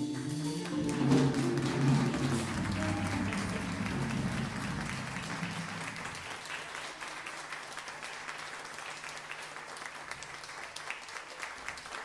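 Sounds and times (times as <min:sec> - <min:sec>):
band last note: 0:00.0 - 0:06.2
audience applauding: 0:00.1 - 0:12.0.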